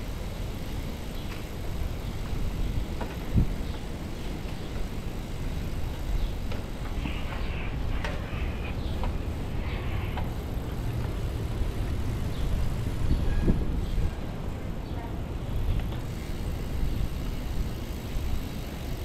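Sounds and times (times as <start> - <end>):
bicycle tyres on road: 0.0 - 19.0
wind on microphone: 12.4 - 14.3.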